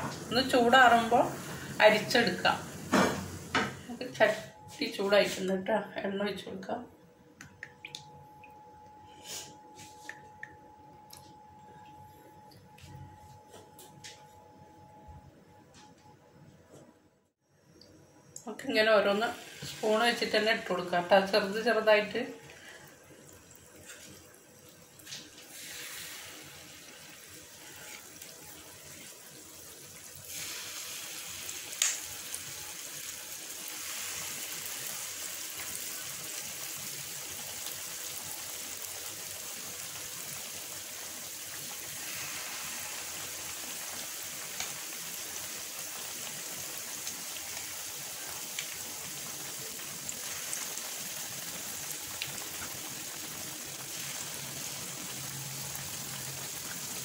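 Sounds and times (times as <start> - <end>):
batter sizzling in hot oil: 0.0 - 5.5, 18.5 - 57.0.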